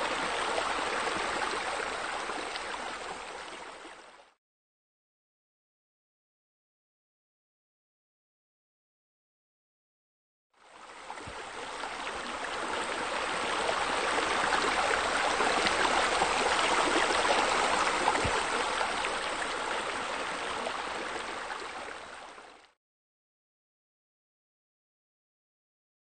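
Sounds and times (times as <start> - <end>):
running water rushing: 0.0 - 4.4, 10.6 - 22.8.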